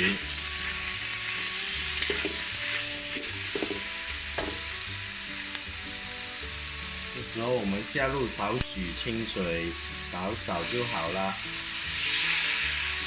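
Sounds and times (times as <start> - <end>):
spatula scraping wok: 0.0 - 7.1, 9.4 - 13.0
food sizzling in a wok: 0.0 - 13.0
soft background music: 0.0 - 13.0.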